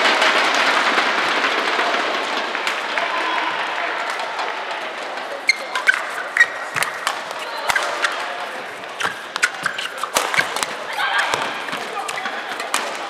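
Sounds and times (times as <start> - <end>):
crowd noise: 0.0 - 13.0
rackets striking shuttlecock: 5.1 - 13.0
shoes squeaking on court: 5.4 - 13.0.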